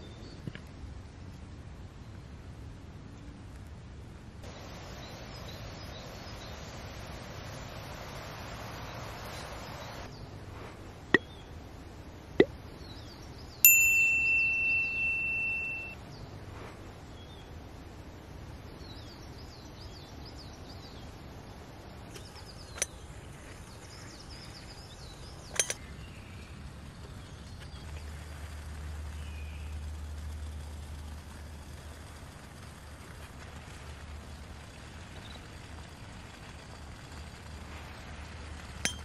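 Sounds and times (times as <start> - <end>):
small birds chirping: 4.4 - 39.0
metallic ding ringing: 13.6 - 16.0.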